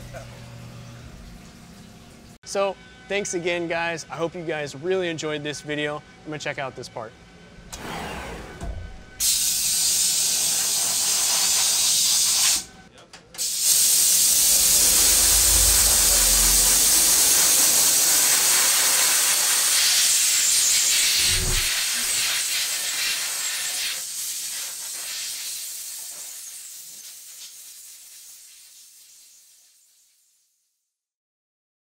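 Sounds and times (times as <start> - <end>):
coolant spraying hiss: 9.2 - 12.7, 13.4 - 30.0.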